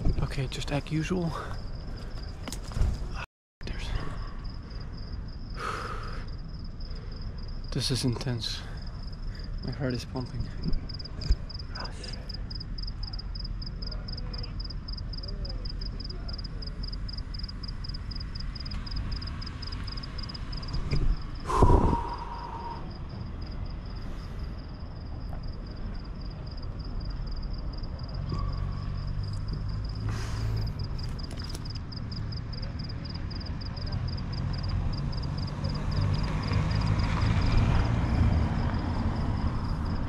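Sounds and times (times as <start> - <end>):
insect chirping: 0.0 - 40.0
street traffic rumble: 0.0 - 40.0
vehicle passing: 31.9 - 40.0.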